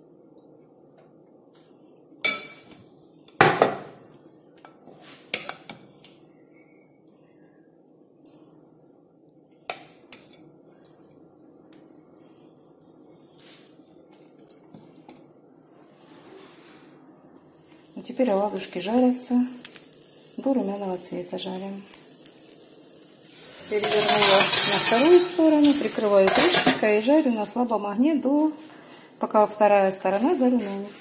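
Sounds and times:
metal spoon clinking on pan: 23.8s - 25.1s.

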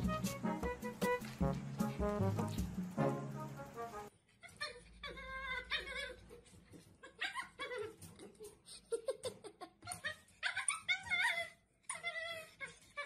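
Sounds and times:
dog whining and yowling: 4.4s - 6.4s, 7.0s - 8.1s, 9.8s - 13.0s.

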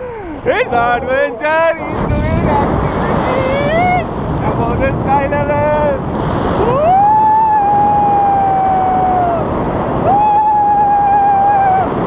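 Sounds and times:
wind on microphone: 0.0s - 12.0s
person whooping: 6.6s - 12.0s.

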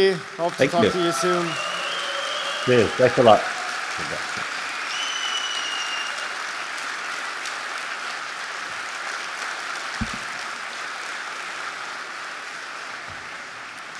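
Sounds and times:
audience applauding: 0.0s - 13.9s
low thump: 10.0s - 10.4s.

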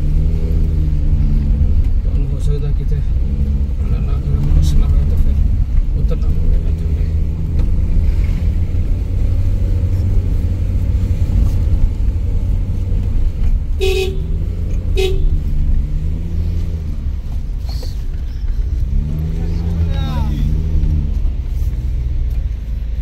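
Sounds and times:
car engine and road rumble: 0.0s - 23.0s
car horn toots: 13.8s - 15.4s.

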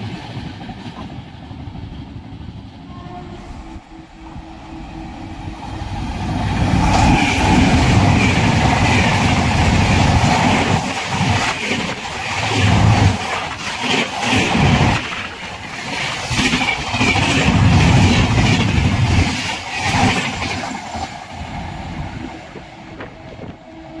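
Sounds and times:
train wheels clattering on track: 6.2s - 24.0s.

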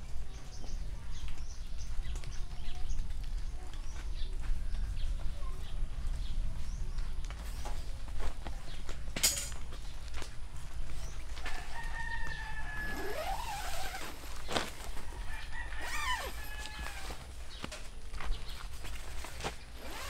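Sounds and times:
rooster crowing: 11.4s - 13.7s, 15.0s - 17.3s.

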